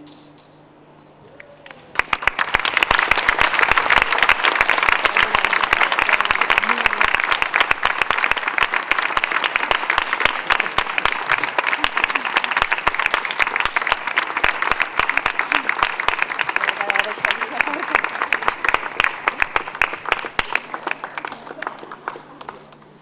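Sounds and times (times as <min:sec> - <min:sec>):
audience applauding: 0:01.6 - 0:23.0.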